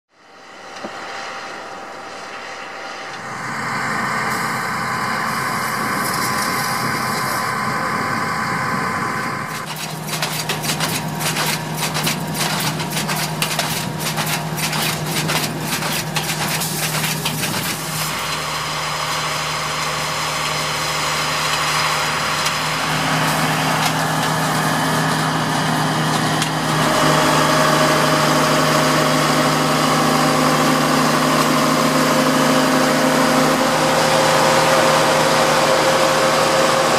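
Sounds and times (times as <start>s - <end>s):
harvester engine running: 0.4s - 36.9s
fast clicking rattle: 9.6s - 17.8s.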